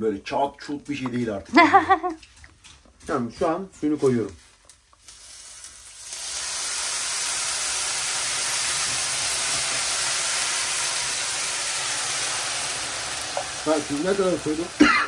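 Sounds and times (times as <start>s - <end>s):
water hissing in hot pot: 4.9s - 15.0s.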